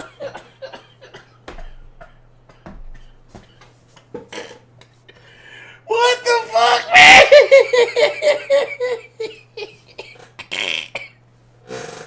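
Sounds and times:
faint steady hum: 0.0s - 12.0s
man laughing breathlessly: 7.1s - 11.0s.

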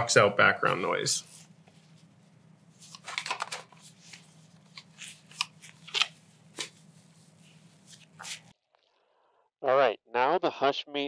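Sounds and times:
mask handling rustling and clicking: 1.6s - 8.5s.

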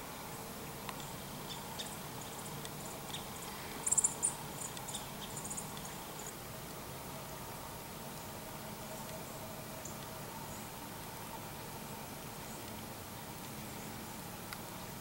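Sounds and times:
small birds chirping: 0.3s - 6.4s.

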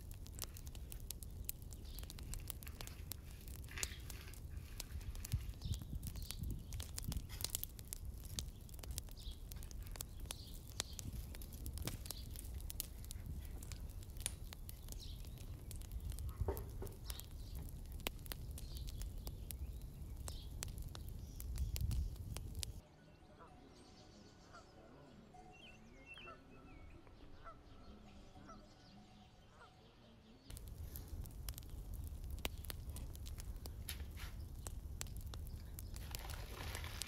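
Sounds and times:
wood fire crackling and popping: 0.0s - 22.8s, 30.5s - 37.0s
bird chirps: 22.8s - 30.5s.

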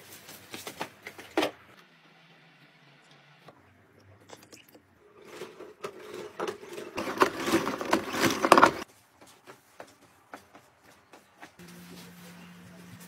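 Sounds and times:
wet mop scraping in bucket: 5.1s - 8.8s.

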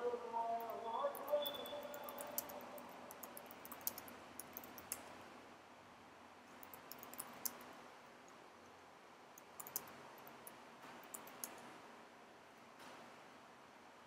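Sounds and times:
low steady hiss: 0.0s - 14.0s
keyboard typing: 0.6s - 5.1s, 6.5s - 7.7s, 9.4s - 11.7s.

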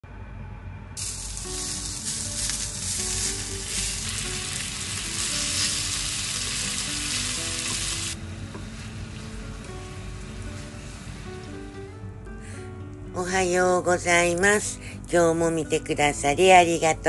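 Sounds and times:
chopsticks stirring in pan: 1.0s - 11.0s
pork sizzling in frying pan: 1.0s - 12.0s.

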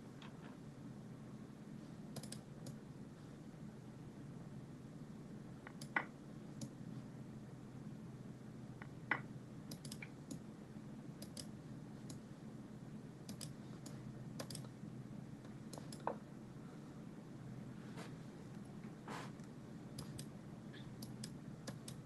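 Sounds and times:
steady low hum: 0.0s - 22.0s
computer mouse clicks: 2.1s - 2.8s, 5.6s - 6.8s, 8.8s - 10.4s, 11.2s - 12.2s, 13.3s - 14.8s, 15.4s - 16.2s, 19.4s - 20.3s, 21.0s - 22.0s.

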